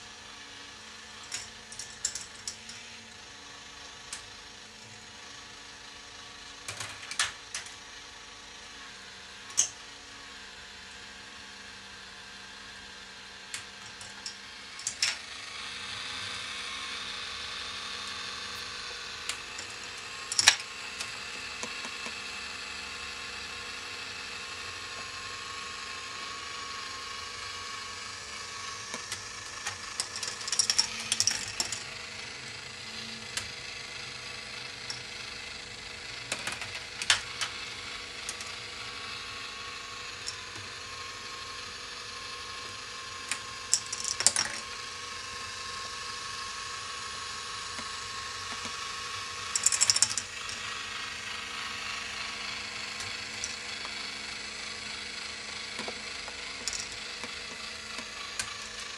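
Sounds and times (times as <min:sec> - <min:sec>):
motor and plastic gears humming: 0:00.0 - 0:58.9
balls rattling through plastic track: 0:01.2 - 0:02.8, 0:18.5 - 0:20.8, 0:28.8 - 0:32.0, 0:40.1 - 0:40.8, 0:42.8 - 0:44.8, 0:47.4 - 0:51.2, 0:52.3 - 0:58.9.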